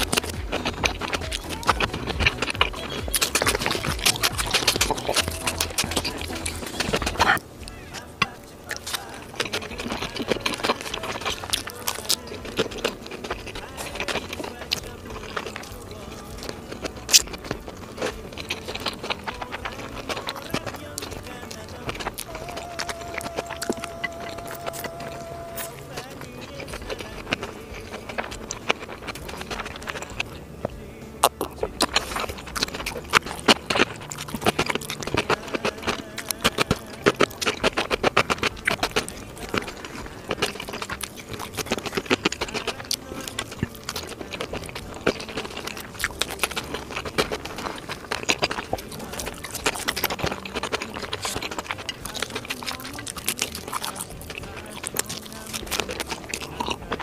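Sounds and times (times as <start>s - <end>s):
person chewing: 0.0s - 57.0s.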